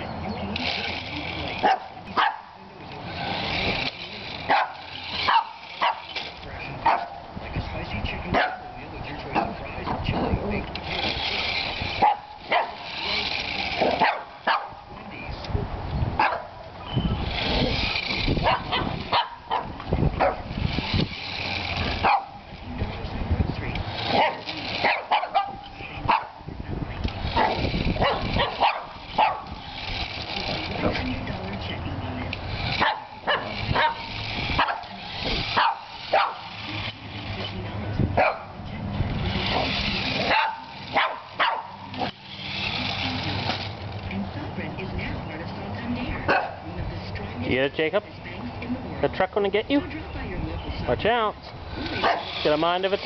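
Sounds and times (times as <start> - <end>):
toy truck electric motor hum: 0.0 - 46.3, 49.0 - 53.0
dog barking: 1.6 - 2.5, 4.5 - 6.0, 6.8 - 7.2, 8.4 - 8.7, 12.0 - 12.8, 13.9 - 14.8, 16.2 - 16.5, 18.4 - 20.4, 22.0 - 22.4, 24.1 - 26.4, 27.4 - 29.6, 32.8 - 34.9, 35.6 - 36.5, 38.2 - 38.5, 40.2 - 41.8, 46.3 - 46.6, 52.0 - 52.3.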